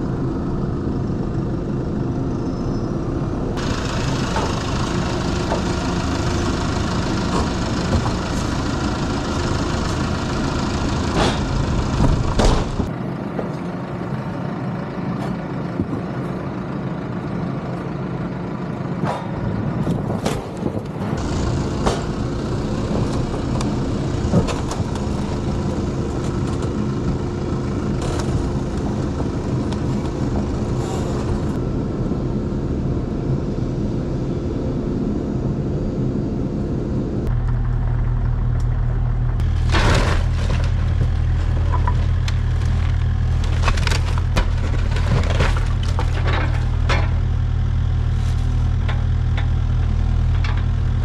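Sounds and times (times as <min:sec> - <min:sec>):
deep heavy engine: 0:00.0 - 0:51.0
tractor engine running: 0:00.0 - 0:51.0
knocks and clatters: 0:37.3 - 0:47.4.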